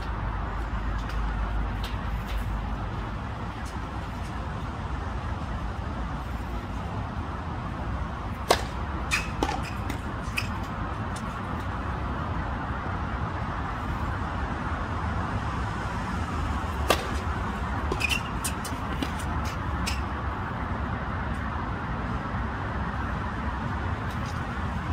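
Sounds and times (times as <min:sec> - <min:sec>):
tennis racket hitting ball: 0:08.4 - 0:10.7, 0:16.8 - 0:20.0.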